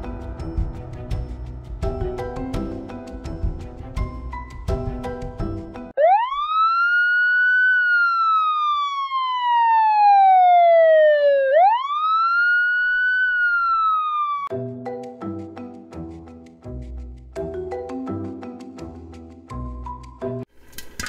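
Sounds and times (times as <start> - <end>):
siren wailing: 6.0 - 14.5.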